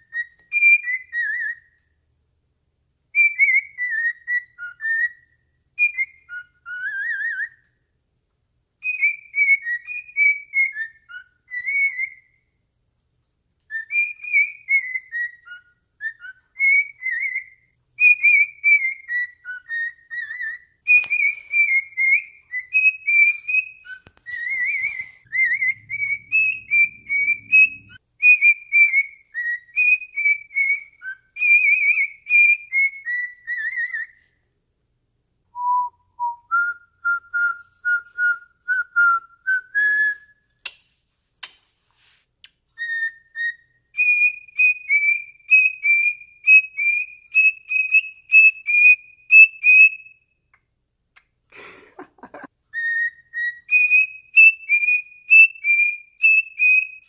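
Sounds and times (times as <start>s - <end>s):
cockatiel whistling: 0.0s - 2.0s, 3.1s - 7.9s, 8.8s - 12.6s, 13.7s - 34.4s, 42.4s - 50.5s, 52.7s - 57.0s.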